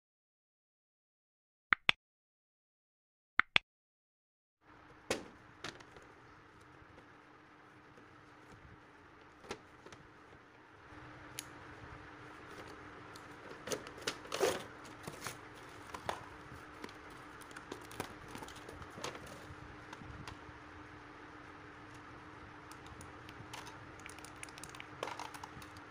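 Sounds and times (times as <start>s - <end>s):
faint steady hum: 4.6s - 25.9s
cardboard rustling and scraping: 12.2s - 20.1s.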